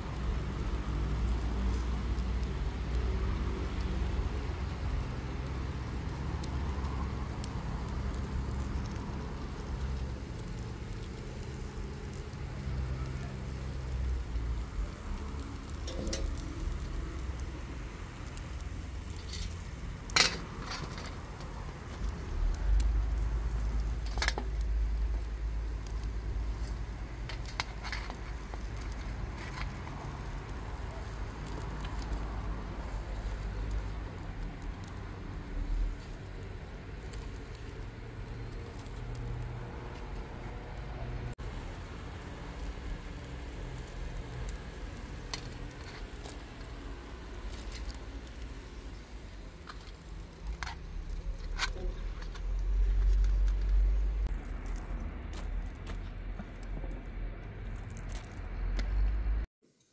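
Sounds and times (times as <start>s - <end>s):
low steady rumble: 0.0s - 59.5s
metal skewers clinking: 15.7s - 16.8s.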